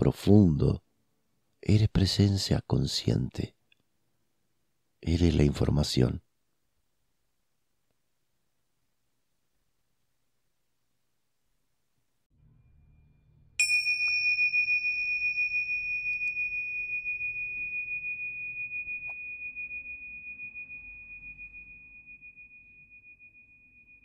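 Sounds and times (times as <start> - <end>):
bell ringing high tone: 13.6 - 24.0.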